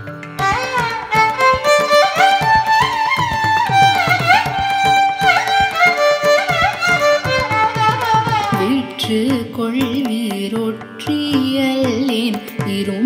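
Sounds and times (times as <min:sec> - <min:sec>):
violin playing ornamented phrases: 0:00.0 - 0:09.1.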